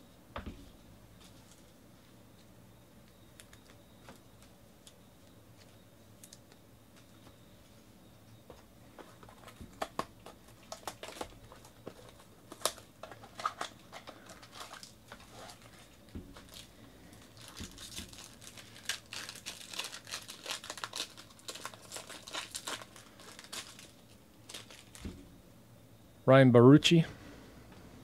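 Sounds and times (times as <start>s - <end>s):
foil wrapper crinkling and tearing: 9.2s - 25.1s.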